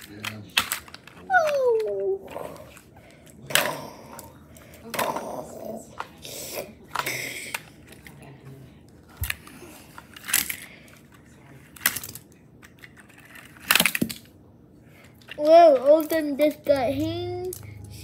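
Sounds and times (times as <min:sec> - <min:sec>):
plastic toy clicks and clatters: 0:00.0 - 0:02.1, 0:11.7 - 0:14.3, 0:15.2 - 0:18.0.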